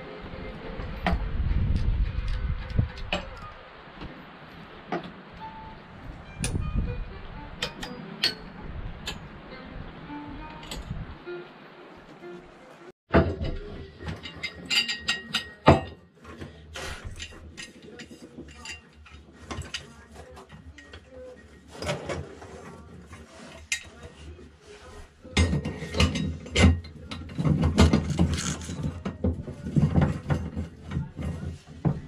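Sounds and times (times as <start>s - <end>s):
metal parts clinking and knocking: 13.1s - 16.0s, 25.4s - 31.3s.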